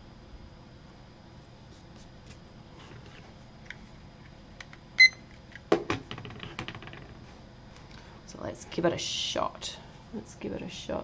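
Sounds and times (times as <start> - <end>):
kitchen timer beep: 5.0 - 5.2.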